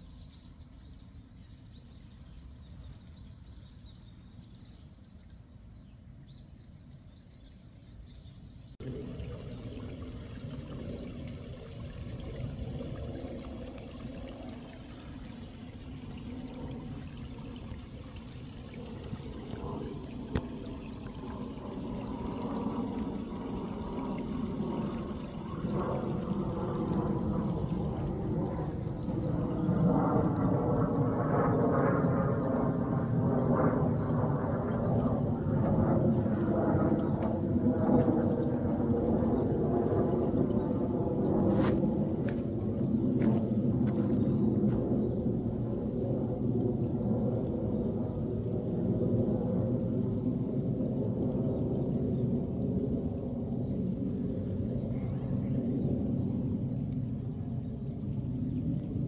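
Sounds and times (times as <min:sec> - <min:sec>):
water pouring and trickling: 0:08.8 - 0:29.6.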